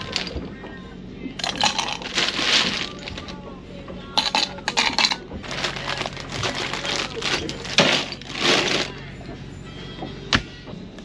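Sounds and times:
ice cubes clinking into cup: 0.0s - 0.4s, 1.4s - 3.4s, 4.2s - 9.0s
plastic bag rustling: 0.0s - 0.4s, 1.4s - 3.4s, 4.2s - 9.0s.

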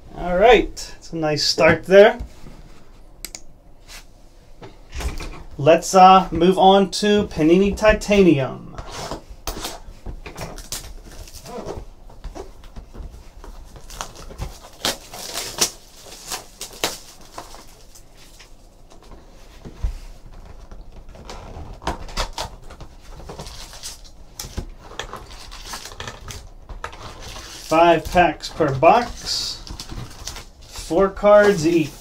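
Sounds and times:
plastic shrink wrap crinkling: 10.3s - 11.8s, 13.4s - 18.7s, 20.6s - 32.0s.

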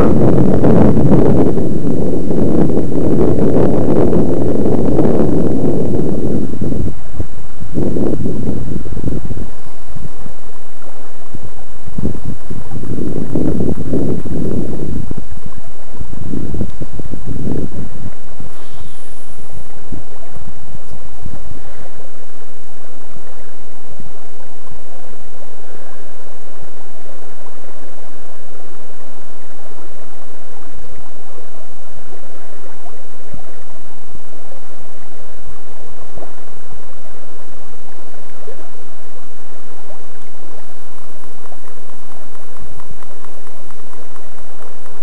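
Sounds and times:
low thumps on microphone: 0.0s - 22.0s, 34.4s - 45.0s
flowing river water: 0.0s - 45.0s.

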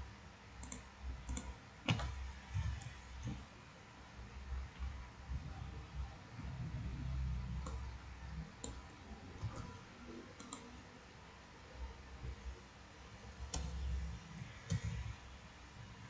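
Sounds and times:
mouse and keyboard clicks: 10.4s - 10.7s, 13.5s - 13.9s, 14.6s - 15.1s.

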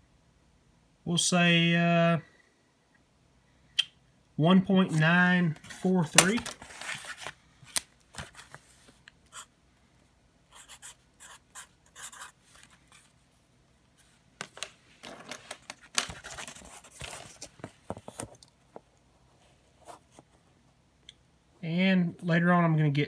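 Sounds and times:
marker writing on cardboard: 10.6s - 12.4s
clicks and rustling of handling: 14.4s - 19.0s.

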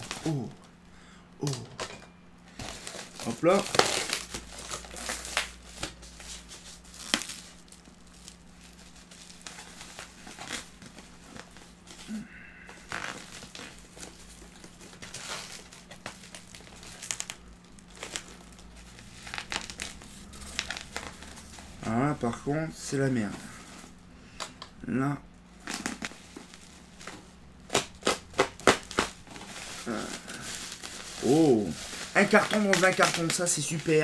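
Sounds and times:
cardboard tearing: 0.0s - 0.5s, 2.6s - 22.1s, 25.6s - 34.0s
cardboard and plastic bag crinkling: 0.0s - 0.8s, 1.4s - 24.0s, 25.5s - 34.0s.

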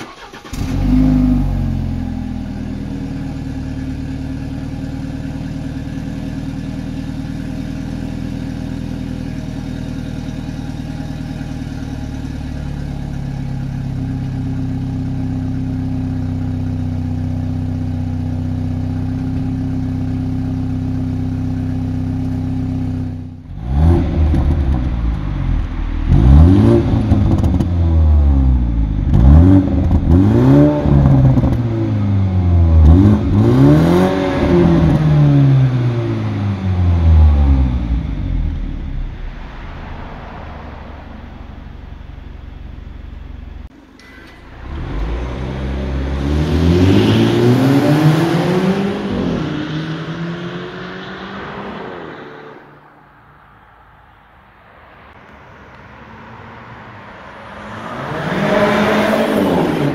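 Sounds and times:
engine revving: 0.0s - 4.3s, 18.4s - 43.7s, 44.4s - 52.9s, 57.2s - 59.9s
car engine idling: 0.0s - 30.2s, 34.5s - 47.0s.

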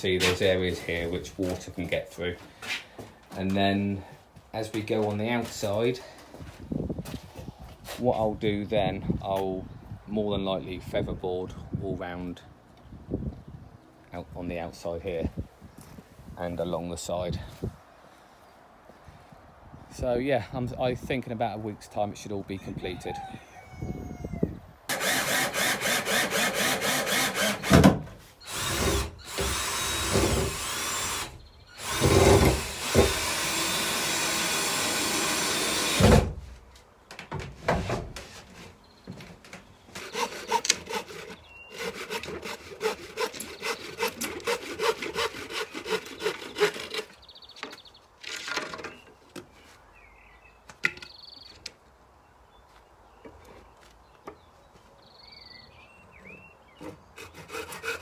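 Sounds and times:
cordless drill driving screws: 24.9s - 27.8s, 28.4s - 36.2s, 40.0s - 47.0s.

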